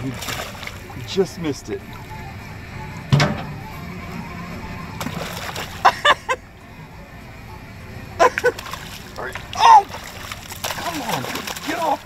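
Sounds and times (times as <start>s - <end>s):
fish splashing at water surface: 0.0s - 1.1s, 5.0s - 5.9s, 8.2s - 12.0s.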